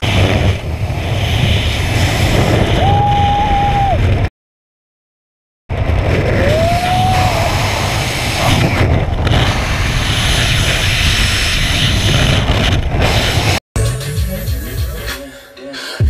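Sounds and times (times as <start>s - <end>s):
wind rushing over microphone: 0.0s - 4.3s, 5.7s - 13.6s.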